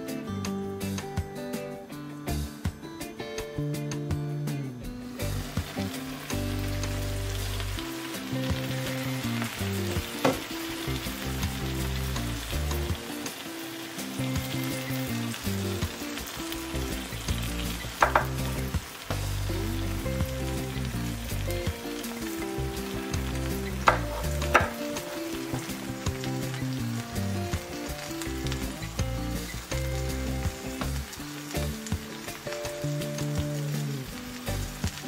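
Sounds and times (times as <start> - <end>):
omelette sizzling in a frying pan: 5.1 - 35.0
short knocks: 18.0 - 18.4.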